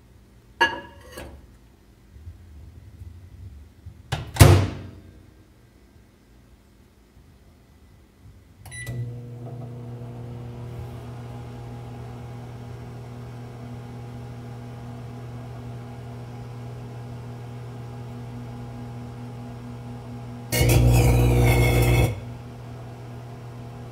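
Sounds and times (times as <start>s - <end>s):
microwave hum and fan: 8.6s - 23.9s
microwave beep: 8.7s - 9.2s.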